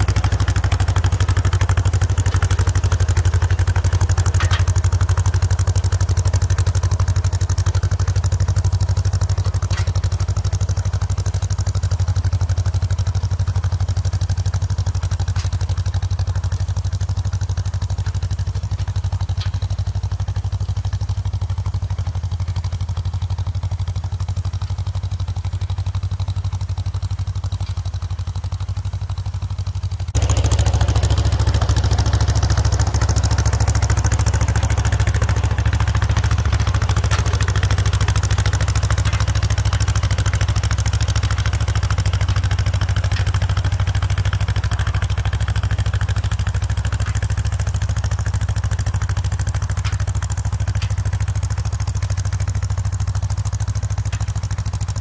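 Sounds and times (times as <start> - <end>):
tractor engine running: 0.0 - 55.0
faint metal clanks: 3.9 - 5.2, 9.3 - 10.3.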